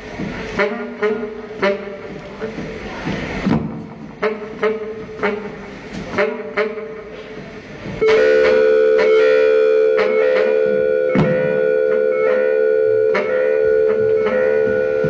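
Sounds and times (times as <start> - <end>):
sustained droning chord: 8.0 - 15.0
drum hits: 10.8 - 12.0.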